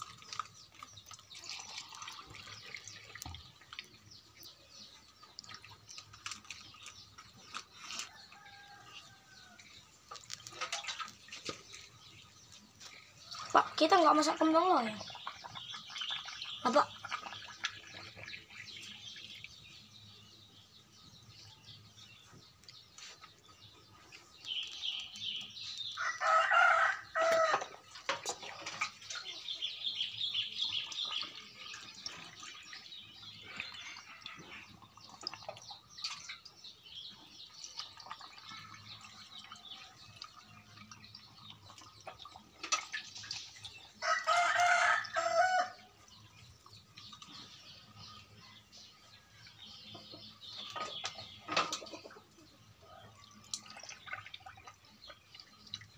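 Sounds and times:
rooster crowing: 26.0 - 27.7, 44.0 - 45.8.

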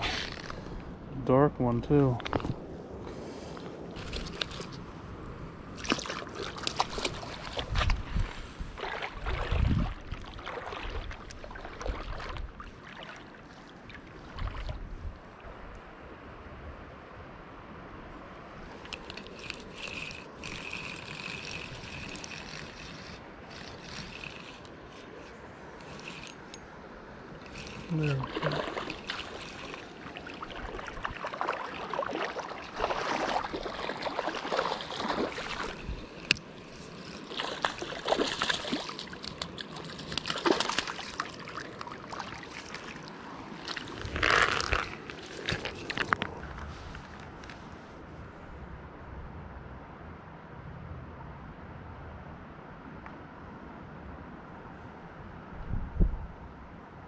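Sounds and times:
fishing reel clicks and rustles: 0.0 - 0.8, 3.6 - 4.8, 5.8 - 8.1, 18.7 - 31.2, 31.8 - 47.8
stream water flowing: 1.9 - 16.3, 17.7 - 48.1.

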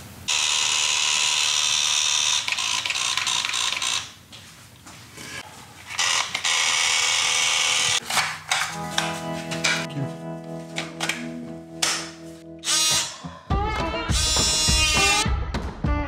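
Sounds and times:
cordless drill running: 0.3 - 4.1, 5.9 - 8.0.

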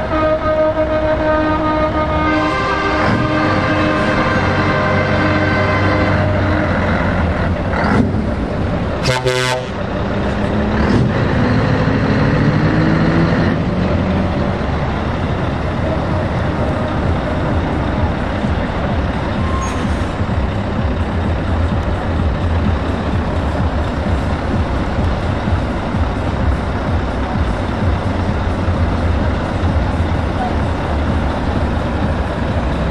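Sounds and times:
truck horn blast: 0.0 - 7.0, 9.0 - 9.9
truck engines running: 0.0 - 32.9.

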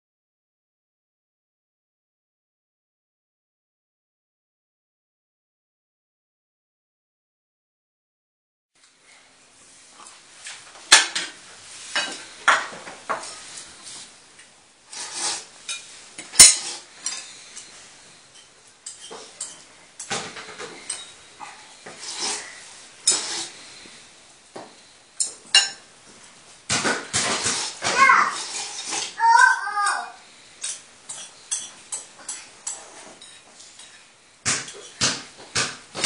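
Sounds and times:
cutlery clinking on plates: 10.9 - 13.3, 15.0 - 21.2, 21.9 - 23.5, 25.2 - 25.9, 30.6 - 36.0.

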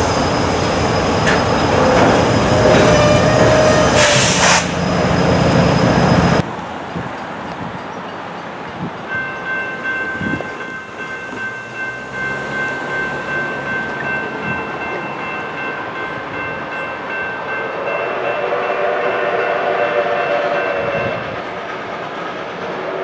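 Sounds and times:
low rumble of train: 0.0 - 23.0
train horn chime: 2.6 - 4.4, 17.2 - 21.4
railroad crossing bell ringing: 7.8 - 21.4.

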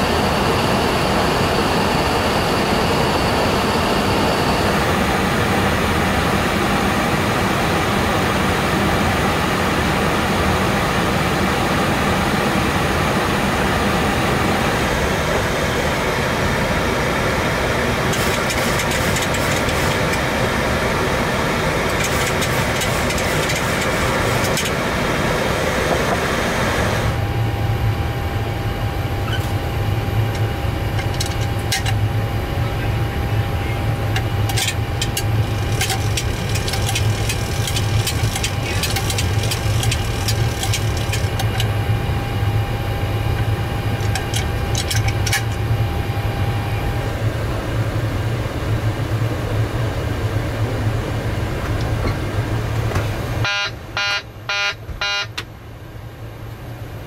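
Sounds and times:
steady low hum: 0.0 - 57.0
trim wheel mechanical whirr: 18.0 - 20.4, 21.6 - 25.0, 33.6 - 47.2.

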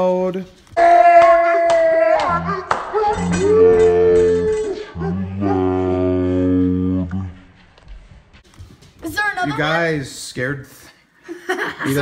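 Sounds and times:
kids shrieking and yelling: 0.8 - 4.8.

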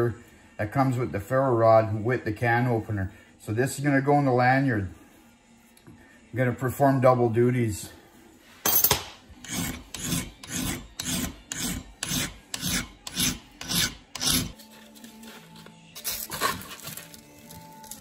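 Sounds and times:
hand file rasping on steel: 9.4 - 14.6.

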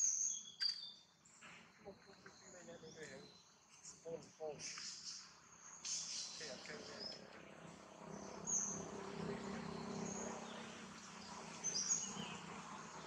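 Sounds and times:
high bird chirps: 0.0 - 1.1
low steady hum: 6.2 - 13.0.

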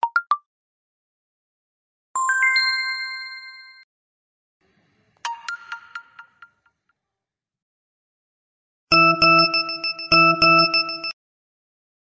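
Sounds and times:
notification chime: 2.2 - 3.8.

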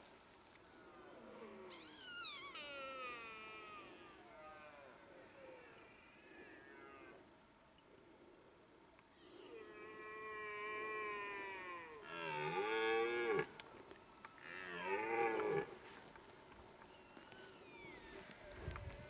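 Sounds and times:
deer stag roaring: 1.1 - 7.2.

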